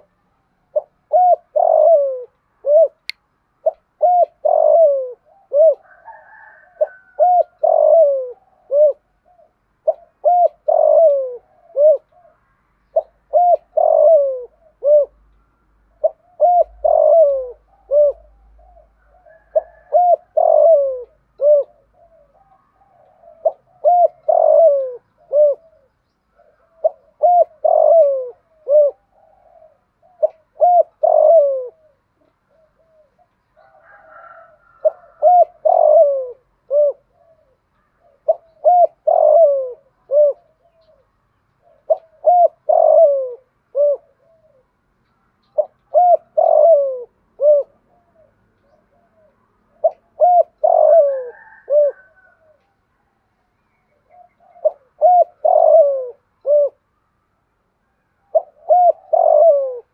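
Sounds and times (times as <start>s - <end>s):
dove cooing: 0.0s - 52.8s, 53.9s - 56.8s, 58.2s - 59.9s.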